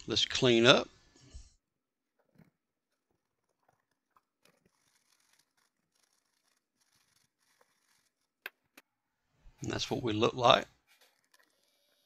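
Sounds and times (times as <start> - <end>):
brush scrubbing circuit board: 3.8 - 8.4.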